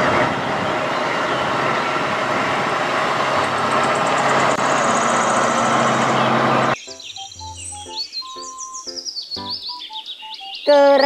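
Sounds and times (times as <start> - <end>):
tractor diesel engine under load: 0.0 - 6.8.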